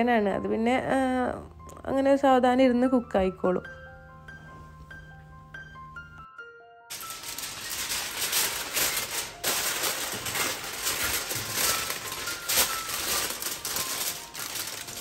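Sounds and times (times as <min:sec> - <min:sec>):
aluminium foil crinkling: 0:06.9 - 0:15.0.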